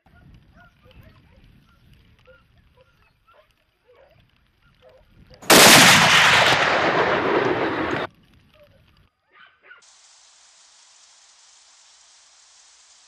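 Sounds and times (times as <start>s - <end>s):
rifle shot: 5.4s - 8.1s.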